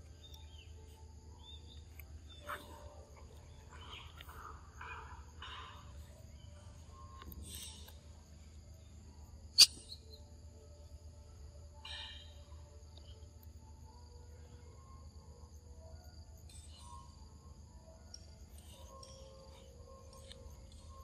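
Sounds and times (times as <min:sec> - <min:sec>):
insects droning: 0:00.0 - 0:21.0
sharp click: 0:09.6 - 0:09.8.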